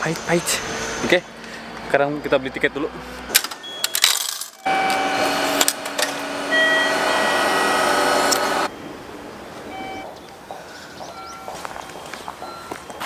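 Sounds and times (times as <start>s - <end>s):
ticket gate mechanical whirr: 3.3s - 8.7s.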